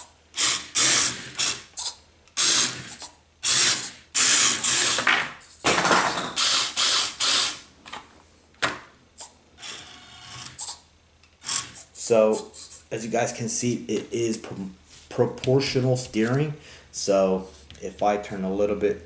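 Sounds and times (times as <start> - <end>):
toy car motor whirring: 0.0 - 5.6, 6.4 - 7.6, 9.2 - 10.8, 11.4 - 12.8.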